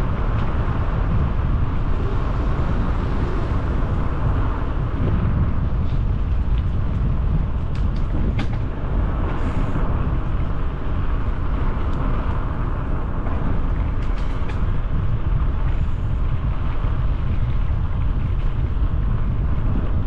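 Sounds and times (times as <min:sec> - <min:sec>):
wind buffeting microphone: 0:00.0 - 0:20.0
bicycle tyre hiss: 0:09.1 - 0:11.0.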